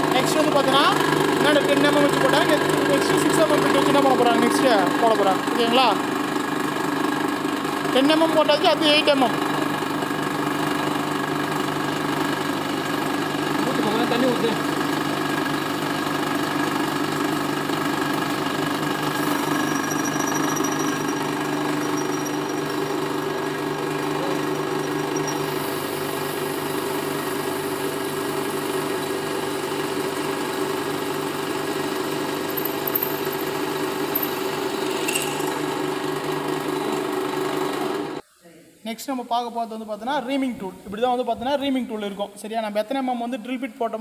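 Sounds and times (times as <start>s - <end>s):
drilling machine humming: 9.2s - 29.7s.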